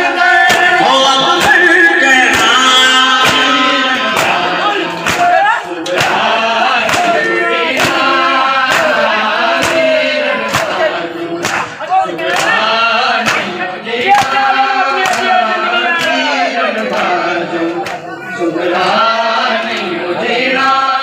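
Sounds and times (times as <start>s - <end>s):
group singing along: 0.0s - 21.0s
man singing over loudspeaker: 0.0s - 21.0s
chest-beating strikes: 0.4s - 7.2s.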